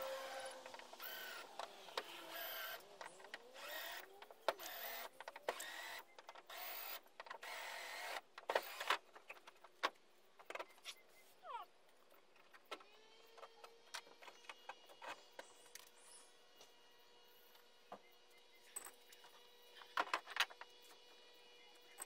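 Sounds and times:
cordless drill bursts: 0:04.6 - 0:08.9.

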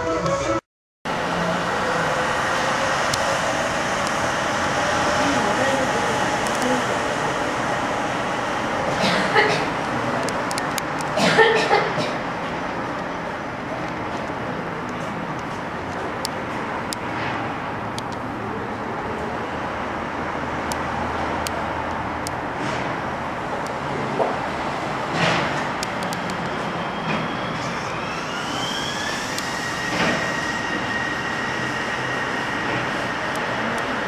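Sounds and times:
rising whine: 0:00.0 - 0:08.6, 0:25.7 - 0:34.0
train rolling rumble: 0:01.1 - 0:34.0.

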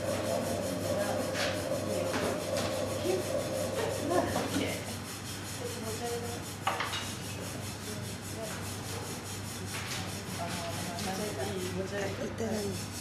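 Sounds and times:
potter's wheel motor hum: 0:00.0 - 0:06.4.

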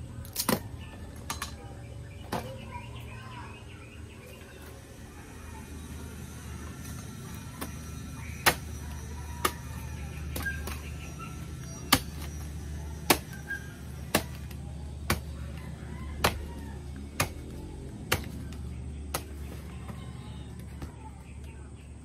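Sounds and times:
knife chopping wood: 0:07.6 - 0:12.4, 0:13.0 - 0:19.6.

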